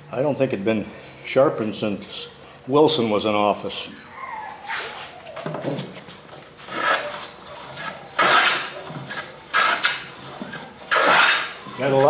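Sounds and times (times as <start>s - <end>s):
hand plane shaving wood: 6.6s - 12.0s.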